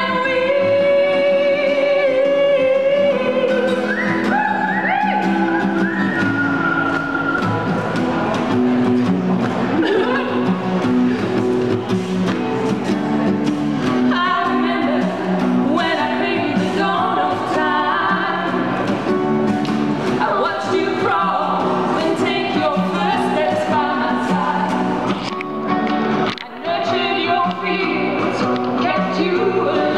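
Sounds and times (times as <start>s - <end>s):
two women singing: 0.0s - 7.2s, 14.0s - 18.8s, 20.1s - 25.3s, 26.3s - 29.9s
acoustic guitar: 0.0s - 29.9s.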